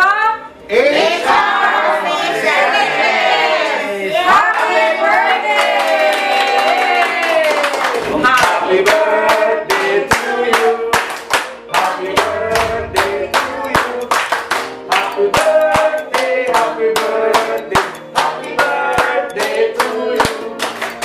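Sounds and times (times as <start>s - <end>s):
people clapping along: 4.4s - 21.0s
upbeat song with singing: 8.0s - 21.0s.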